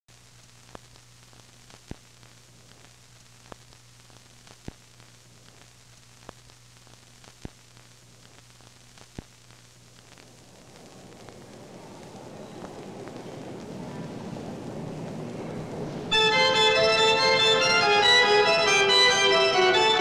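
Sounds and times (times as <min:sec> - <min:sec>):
sharp crackle pops: 0:00.1 - 0:13.8
film soundtrack hiss and hum: 0:00.1 - 0:20.0.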